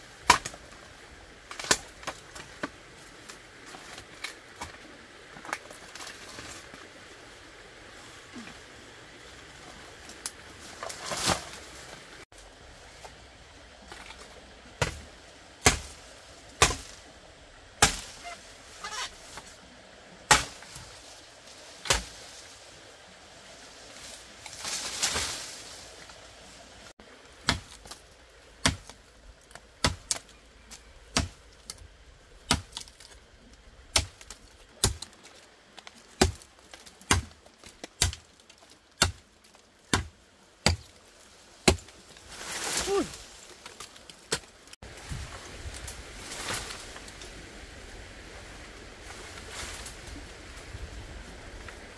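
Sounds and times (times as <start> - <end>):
rustling: 23.5 - 28.2.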